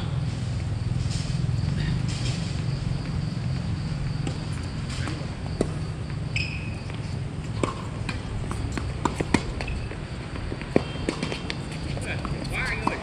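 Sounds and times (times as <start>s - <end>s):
shoe squeak: 1.6s - 3.0s, 4.3s - 10.0s, 10.7s - 13.0s
tennis ball struck and bouncing: 7.4s - 13.0s.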